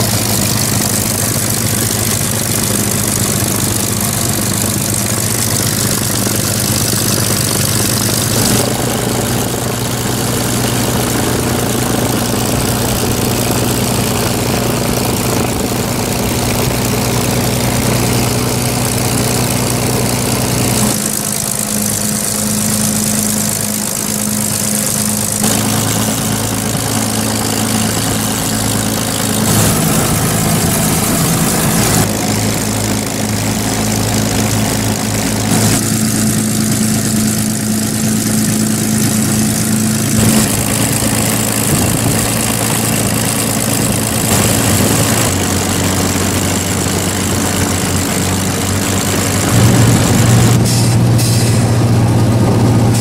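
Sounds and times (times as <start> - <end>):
aircraft engines droning: 0.0 - 53.0.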